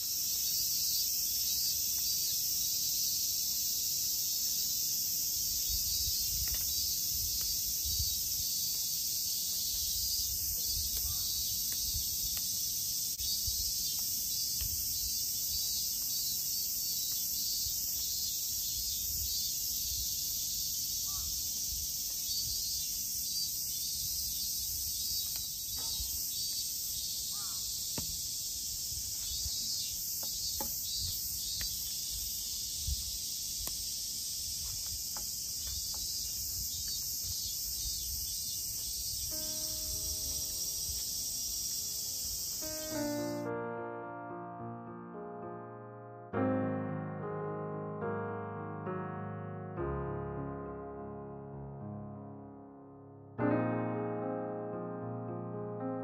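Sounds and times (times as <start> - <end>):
insects shrilling: 0.0 - 43.5.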